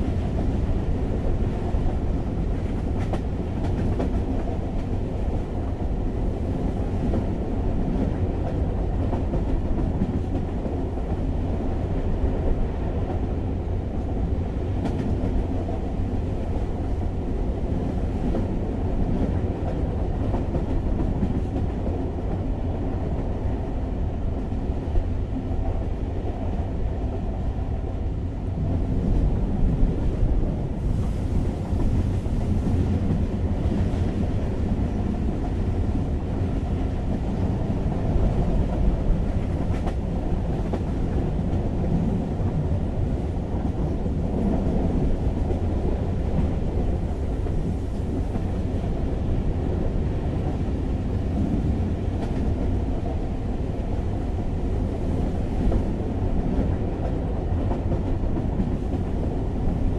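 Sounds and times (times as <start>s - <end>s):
train wheels rumbling on track: 0.0s - 59.9s
faint track clacks: 2.5s - 5.0s, 14.8s - 15.8s, 38.2s - 42.6s.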